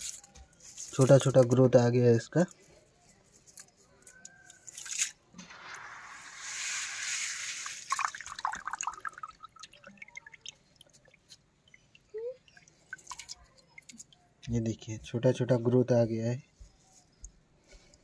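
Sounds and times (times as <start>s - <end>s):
water pouring and dripping: 4.7s - 14.4s
water splash: 5.4s - 10.5s.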